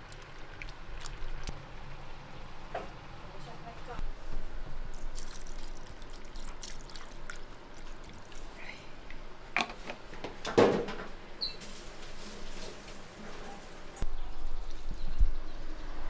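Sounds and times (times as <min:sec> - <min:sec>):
liquid pouring and trickling: 0:00.0 - 0:01.6, 0:04.9 - 0:08.6.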